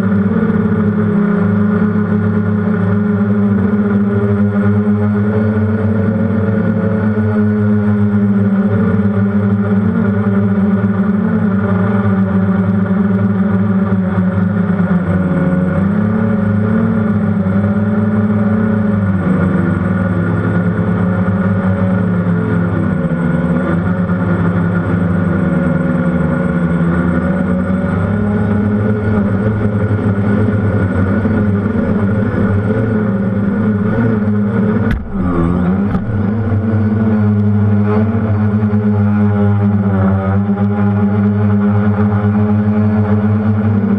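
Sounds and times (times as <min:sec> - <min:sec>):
drone propellers humming: 0:15.1 - 0:43.9
drone landing knock on grass: 0:34.8 - 0:37.0.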